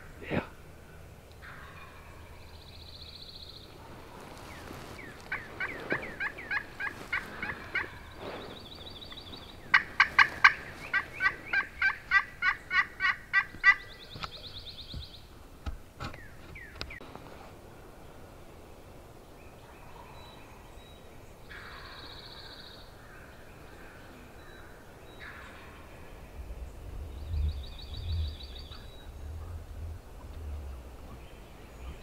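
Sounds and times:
turkey yelping: 5.2s - 8.0s, 9.7s - 13.8s.

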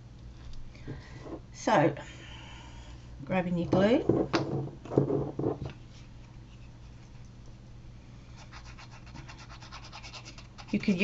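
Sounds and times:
glue stick rubbing on paper: 8.4s - 11.0s.

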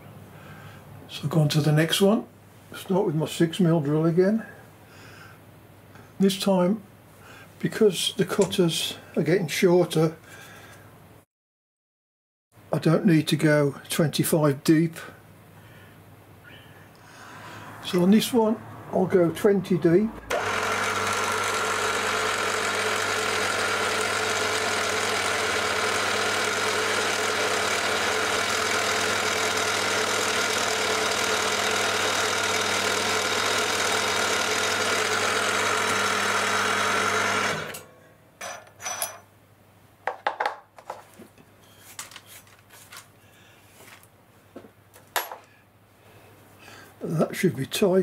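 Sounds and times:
drill boring into wood: 20.3s - 37.9s.

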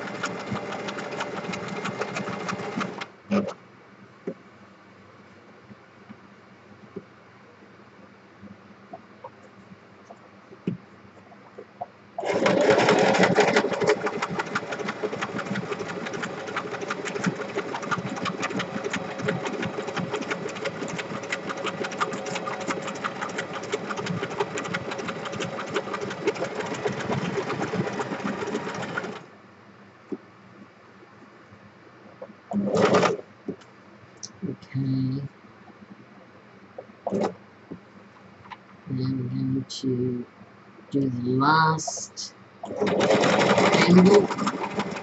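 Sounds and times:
electric sewing machine stitching: 0.0s - 3.6s, 12.2s - 29.3s, 32.6s - 33.2s, 42.6s - 45.0s.

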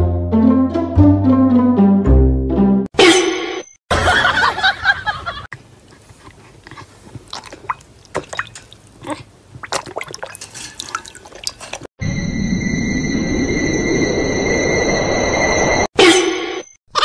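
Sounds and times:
dog lapping water from bowl: 6.3s - 11.9s.

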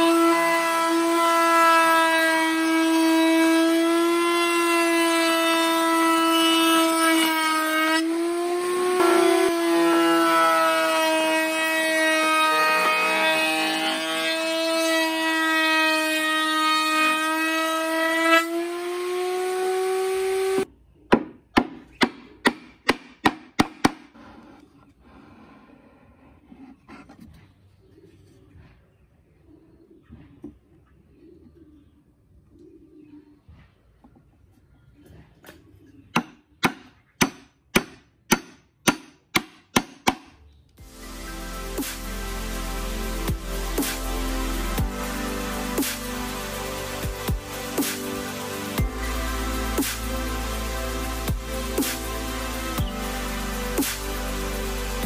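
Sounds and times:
power tool motor whining: 0.0s - 20.6s
music: 9.0s - 17.1s, 40.8s - 55.0s.

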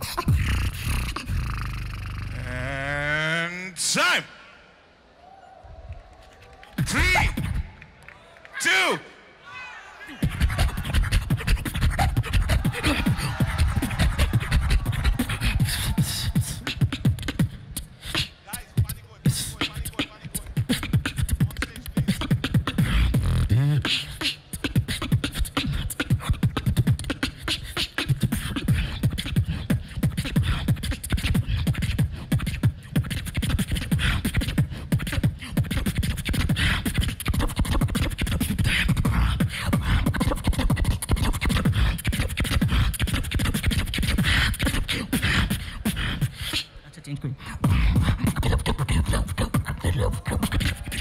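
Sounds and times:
amplified beatboxing: 0.0s - 3.3s, 6.8s - 7.9s, 10.2s - 51.0s.

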